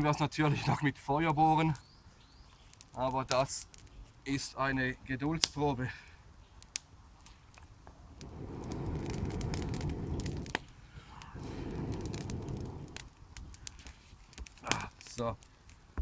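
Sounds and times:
twigs crackling in fire: 0:00.0 - 0:16.0
person blowing into fire: 0:08.2 - 0:15.0.

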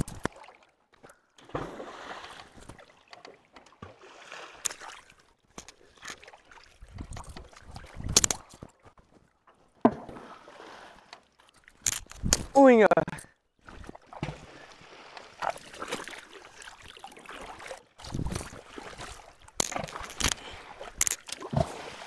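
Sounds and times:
stones splashing into water: 0:01.4 - 0:02.9.

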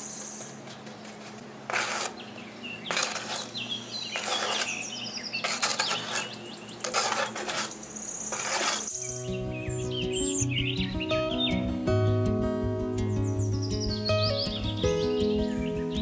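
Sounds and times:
birds chirping: 0:00.0 - 0:01.4, 0:02.0 - 0:12.2, 0:12.8 - 0:16.0
metal trowel scraping sand: 0:01.7 - 0:02.2, 0:02.8 - 0:09.1
acoustic guitar music: 0:08.9 - 0:16.0.

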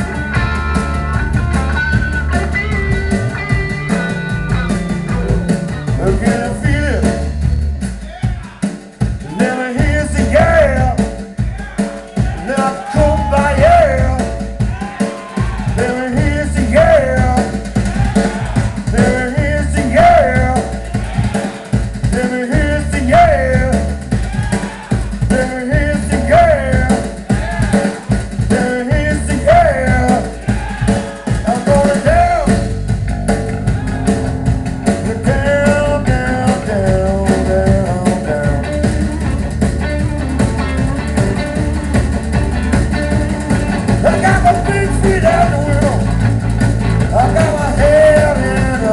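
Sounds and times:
bending lead guitar line: 0:00.0 - 0:07.8, 0:22.5 - 0:48.9
rock band playing: 0:00.0 - 0:48.9.

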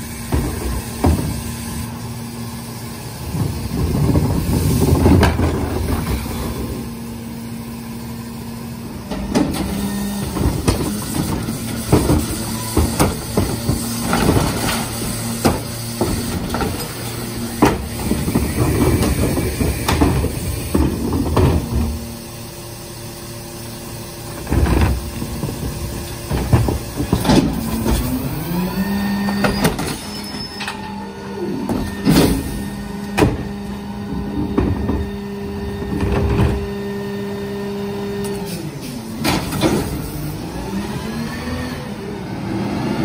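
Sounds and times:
carts knocking and banging: 0:00.0 - 0:01.9, 0:03.2 - 0:06.9, 0:09.1 - 0:22.1, 0:24.3 - 0:31.0, 0:31.6 - 0:36.8
garbage truck engine idling: 0:00.0 - 0:41.3
hydraulic packer compacting: 0:00.0 - 0:43.0.

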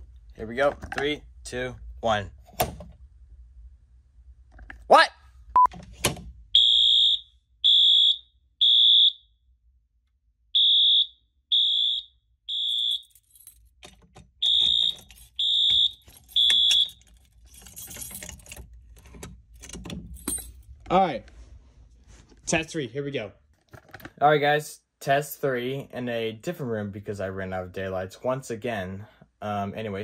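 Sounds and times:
fire alarm beeping: 0:06.6 - 0:09.3, 0:10.5 - 0:13.2, 0:14.4 - 0:17.0
clicks and rattling of key reset: 0:12.8 - 0:20.6.

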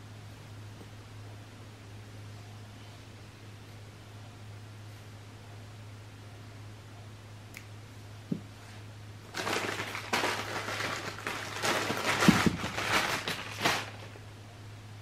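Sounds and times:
rustling handling noise: 0:08.6 - 0:14.2.

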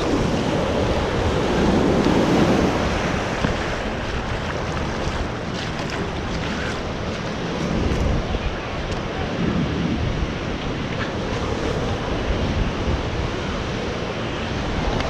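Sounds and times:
shallow surf washing over sand: 0:00.0 - 0:15.0
wind buffeting microphone: 0:00.0 - 0:15.0.

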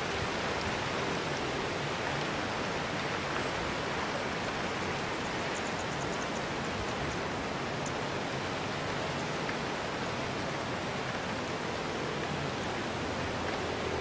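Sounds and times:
faint high ticks: 0:07.8 - 0:08.0.

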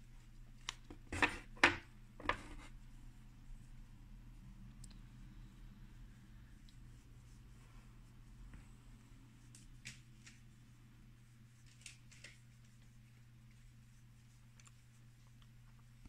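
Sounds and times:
steady low hum: 0:00.0 - 0:11.7.

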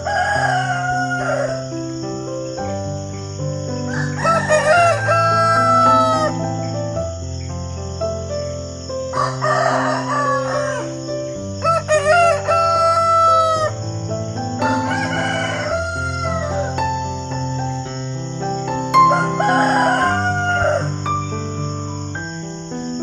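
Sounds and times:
rooster crowing: 0:00.0 - 0:01.8, 0:03.8 - 0:06.6, 0:09.1 - 0:13.9, 0:14.6 - 0:16.8, 0:19.0 - 0:21.3
soft background music: 0:00.0 - 0:23.0.

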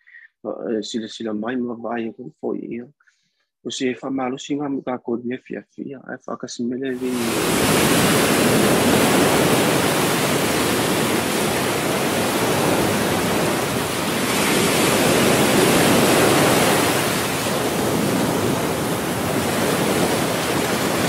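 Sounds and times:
small waves washing up beach: 0:07.0 - 0:21.0.

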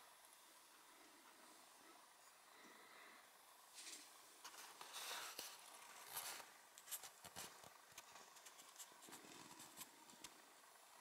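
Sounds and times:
soft rustle: 0:03.6 - 0:11.0.

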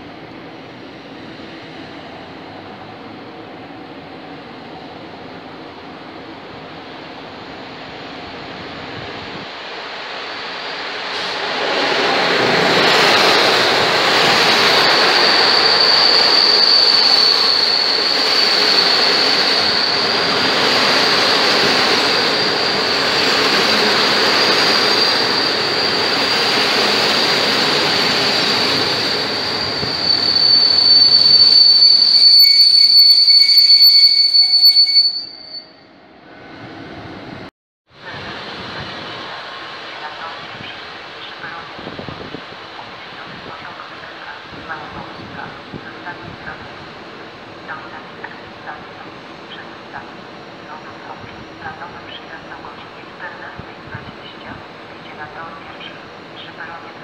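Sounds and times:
train rail noise: 0:00.0 - 0:57.0
high steady squeal: 0:13.9 - 0:35.9.

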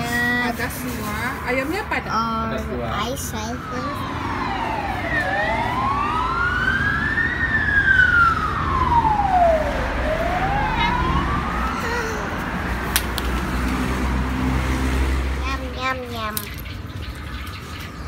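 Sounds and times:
road traffic rumble: 0:00.0 - 0:18.0
emergency vehicle siren wailing: 0:01.5 - 0:12.9.

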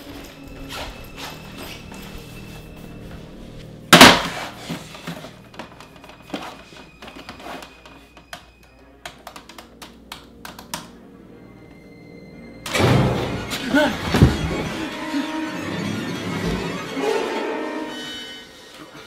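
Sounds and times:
quiet background music: 0:00.0 - 0:19.0
loud thud: 0:04.0 - 0:04.5
laptop keyboard typing: 0:09.0 - 0:10.9.

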